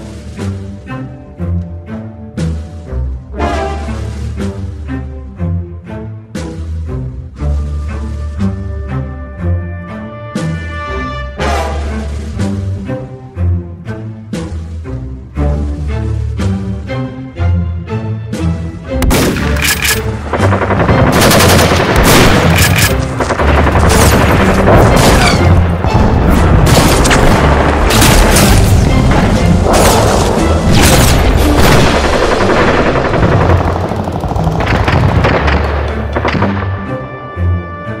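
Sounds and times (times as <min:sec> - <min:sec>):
action music: 0:00.0 - 0:38.0
rapid gunfire: 0:19.1 - 0:25.6, 0:29.7 - 0:36.7
booming blasts: 0:20.4 - 0:22.6, 0:23.4 - 0:36.9.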